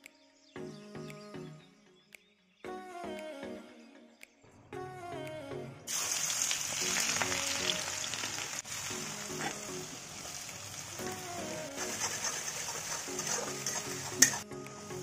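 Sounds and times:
soft background music: 0:00.0 - 0:05.9, 0:06.7 - 0:15.0
food sizzling in wok: 0:05.9 - 0:15.0.

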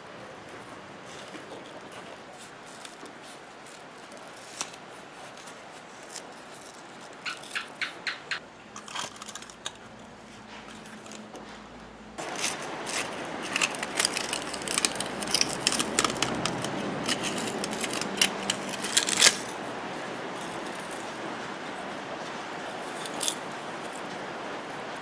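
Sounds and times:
speaker cone tearing and scraping: 0:12.2 - 0:19.6.

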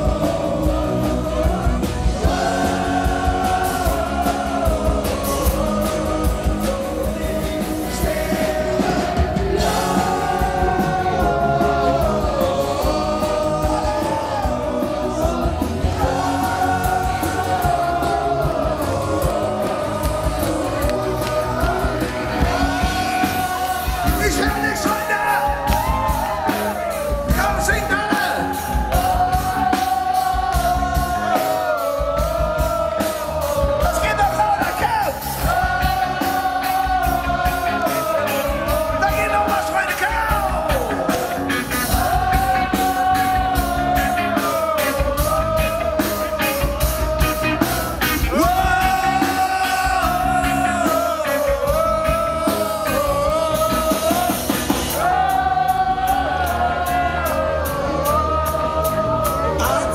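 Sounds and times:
drums: 0:00.0 - 0:59.9
keyboards: 0:00.0 - 0:59.9
singer singing: 0:00.0 - 0:59.9
electric guitar: 0:35.1 - 0:59.9.

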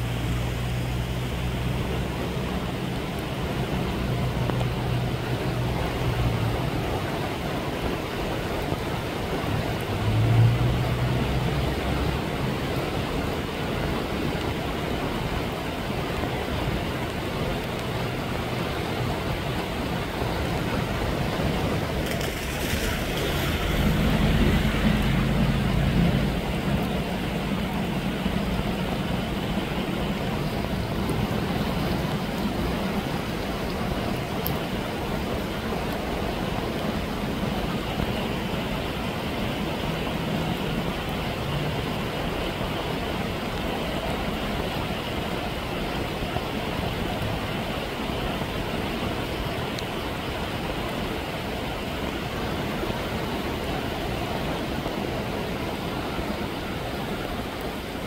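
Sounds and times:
vehicle engine humming: 0:00.0 - 0:45.0
floodwater rushing down a channel: 0:00.0 - 0:58.0.

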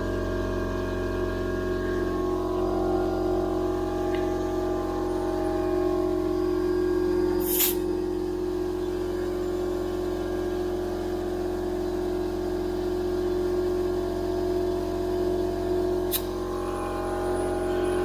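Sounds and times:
sharp click: 0:16.1 - 0:16.3.

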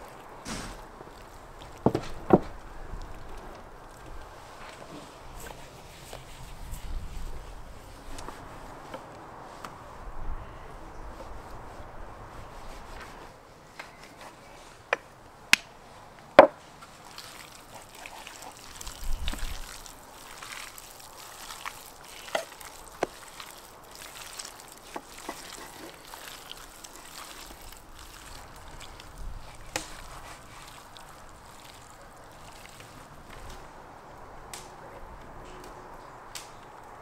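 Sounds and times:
wet squelching of meat: 0:16.9 - 0:33.5.

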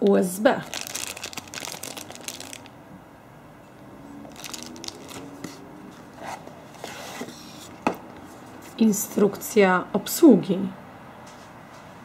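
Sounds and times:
plastic bag crinkling: 0:00.6 - 0:02.7, 0:04.3 - 0:05.6.

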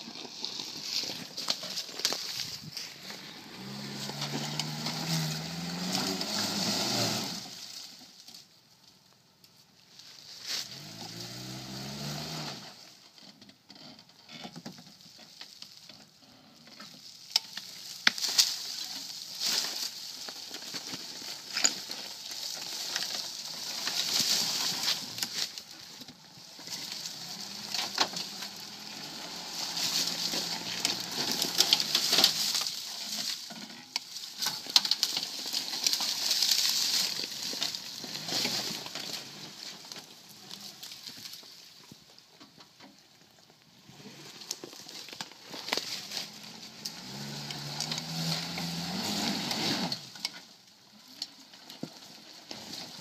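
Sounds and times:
tyres crunching through dry leaves: 0:00.0 - 0:08.8, 0:09.8 - 0:13.0, 0:14.8 - 0:53.0
car engine revving: 0:03.1 - 0:07.8, 0:10.6 - 0:12.8, 0:26.7 - 0:32.8, 0:46.2 - 0:50.2
twigs and branches snapping: 0:17.3 - 0:25.7, 0:29.4 - 0:41.6.

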